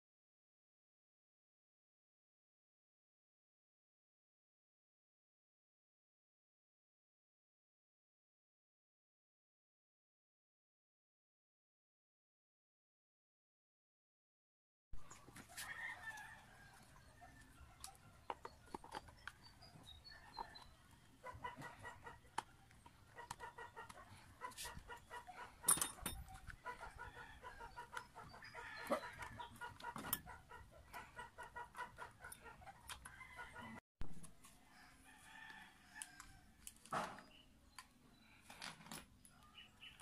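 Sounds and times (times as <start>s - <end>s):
chickens clucking: 16.7s - 34.3s
metal parts being handled: 25.6s - 26.3s.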